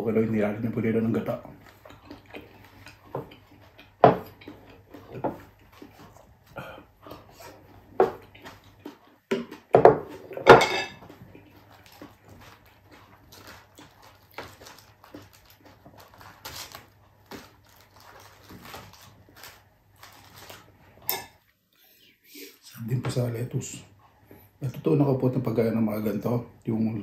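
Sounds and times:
person chewing: 1.3s - 21.0s
lettuce leaves crackling: 11.4s - 20.8s.

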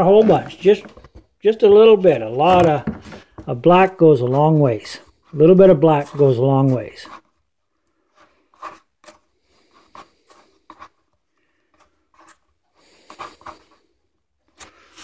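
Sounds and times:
paintbrush scratching on palette: 4.2s - 14.0s.

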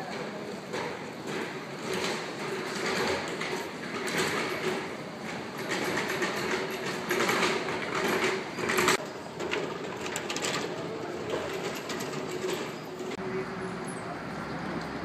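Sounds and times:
busy street bustle: 0.0s - 15.0s.

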